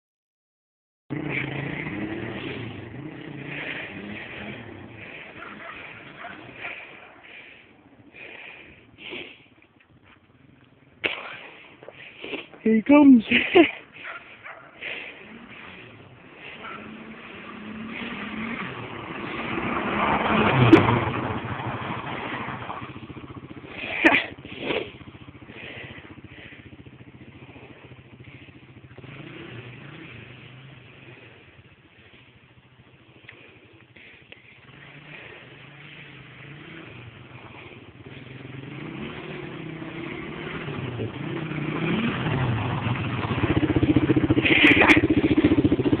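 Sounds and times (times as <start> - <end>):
quad engine revving: 1.1 - 9.6, 10.3 - 46.0.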